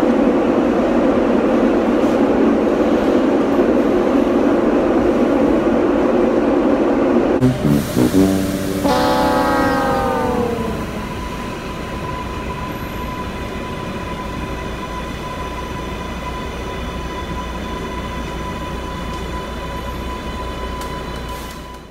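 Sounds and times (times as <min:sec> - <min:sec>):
subway car rumble: 0:00.0 - 0:21.9
falling tone: 0:07.4 - 0:11.4.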